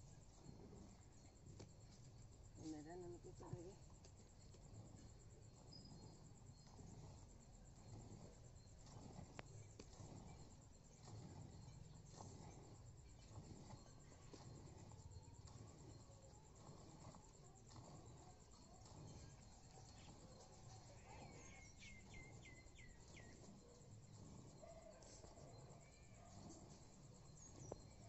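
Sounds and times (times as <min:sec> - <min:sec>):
high insect trill: 0:12.7 - 0:28.0
bird chirping: 0:19.1 - 0:23.9.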